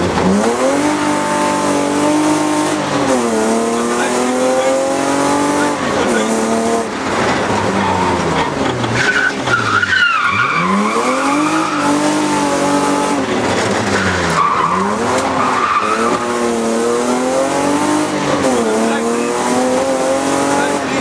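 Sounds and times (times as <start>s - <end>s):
car engine revving: 0.0s - 21.0s
tyre squeal: 7.8s - 12.2s, 13.9s - 16.5s.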